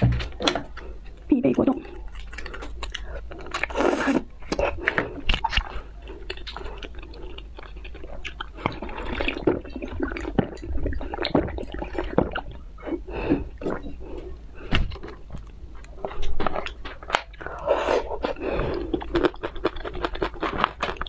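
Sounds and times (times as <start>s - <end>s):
wet slurping and gulping: 1.8s - 14.2s.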